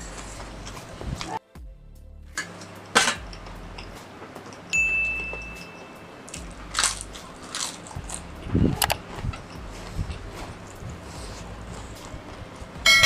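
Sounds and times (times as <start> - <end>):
crunching and chewing chips: 6.3 - 12.7.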